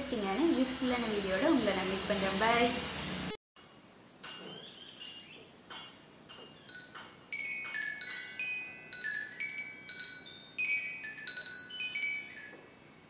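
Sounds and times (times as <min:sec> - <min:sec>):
metal wind chime ringing: 0:06.6 - 0:13.0.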